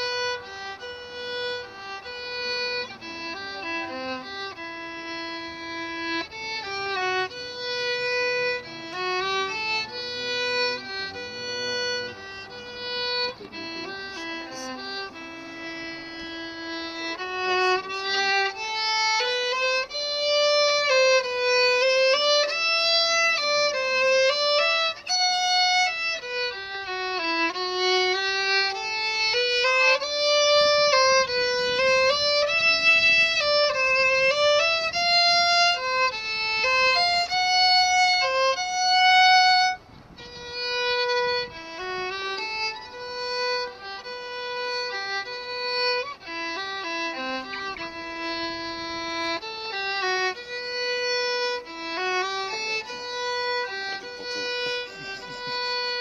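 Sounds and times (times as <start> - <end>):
solo violin melody: 0.0 - 56.0.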